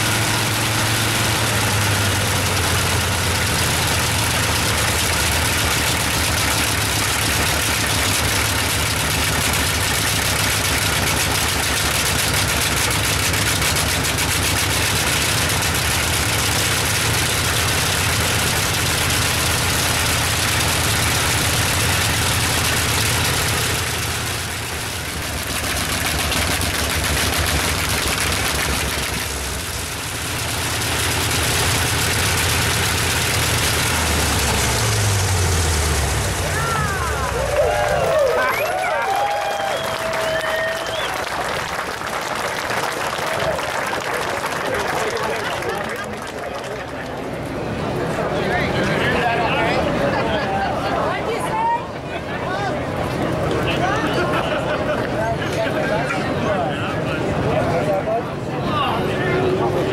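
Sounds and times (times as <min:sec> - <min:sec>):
radial aircraft engine running: 0:00.0 - 0:39.0.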